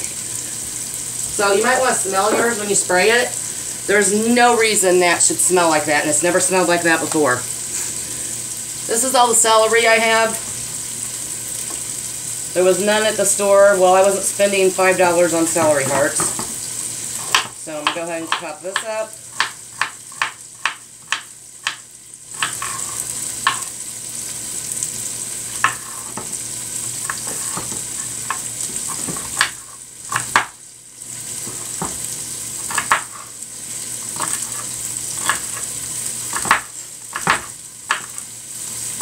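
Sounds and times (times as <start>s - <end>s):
chicken sizzling in pot: 0.0s - 39.0s
knife chopping on cutting board: 17.2s - 21.8s, 22.4s - 23.7s, 25.6s - 26.3s, 27.1s - 30.5s, 32.7s - 33.2s, 36.4s - 38.1s.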